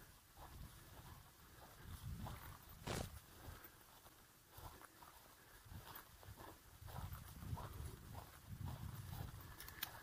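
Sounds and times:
footsteps on grass: 0:00.0 - 0:10.0
sharp clicks: 0:09.5 - 0:10.0.

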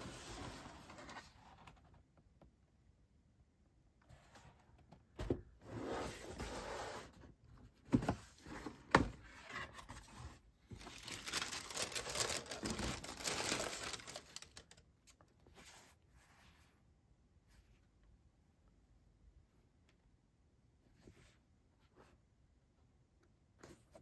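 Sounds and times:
tissue paper crinkling: 0:10.7 - 0:14.8.

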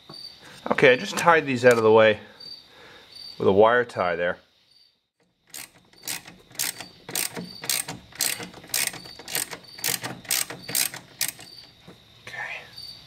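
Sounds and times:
socket ratchet clicking: 0:05.5 - 0:12.0.

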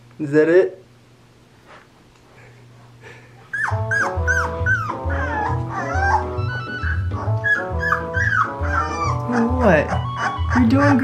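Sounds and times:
puppies whimpering: 0:03.4 - 0:11.0.

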